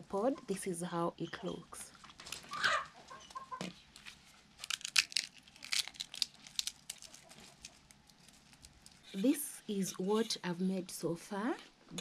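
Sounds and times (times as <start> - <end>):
dry pod shells cracking: 4.6 - 9.1.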